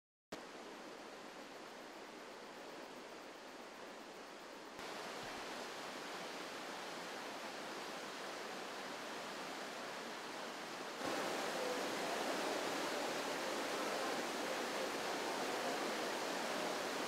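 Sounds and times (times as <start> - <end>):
whitewater rapids rushing: 4.8 - 17.0.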